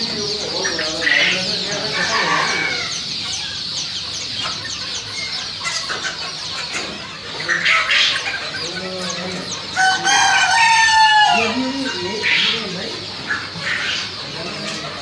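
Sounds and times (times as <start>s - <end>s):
chickens peeping and clucking: 0.0s - 15.0s
rooster crowing: 1.1s - 3.0s, 9.8s - 12.2s.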